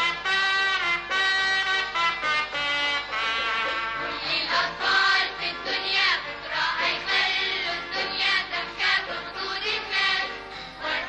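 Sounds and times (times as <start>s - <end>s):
bright instrumental backing: 0.0s - 11.0s
children's choir singing: 4.0s - 11.0s.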